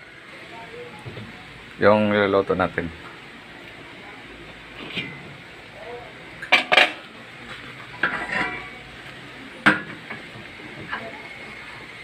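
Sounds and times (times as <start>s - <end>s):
metal pan lid clanking: 6.4s - 7.0s, 8.0s - 8.8s.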